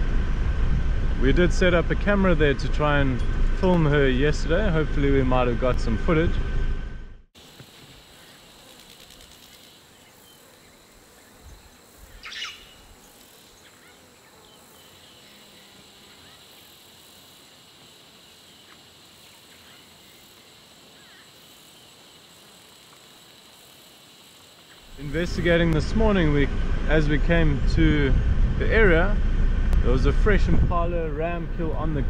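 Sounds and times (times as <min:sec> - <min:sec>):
high-pitched insect drone: 0:07.4 - 0:26.2.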